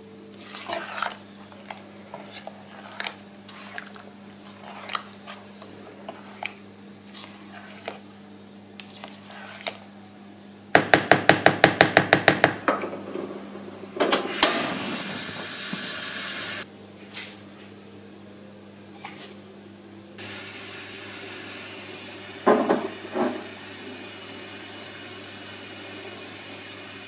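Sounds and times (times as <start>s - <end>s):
spatula stirring thick jam: 0.3s - 9.9s
loud hiss: 14.3s - 16.6s.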